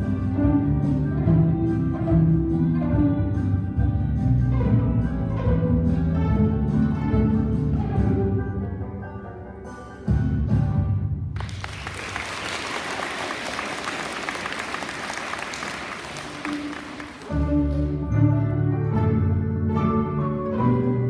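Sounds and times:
string orchestra playing: 0:00.0 - 0:09.8, 0:16.0 - 0:21.0
audience applauding: 0:11.4 - 0:17.5.

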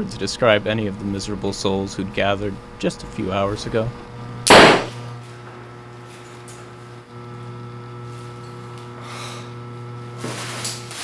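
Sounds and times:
steady low hum: 0:00.0 - 0:10.8
revolver gunshot: 0:04.5 - 0:05.0.

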